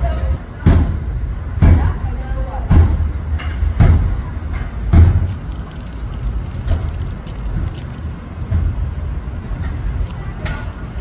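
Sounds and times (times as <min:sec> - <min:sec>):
knocks and rattles: 0:03.4 - 0:08.8.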